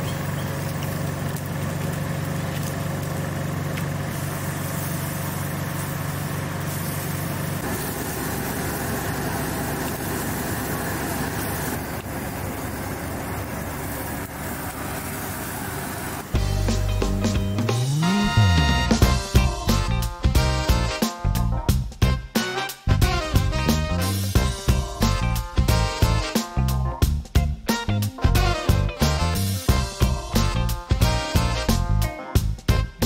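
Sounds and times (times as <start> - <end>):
low motor hum: 0.0 - 20.1.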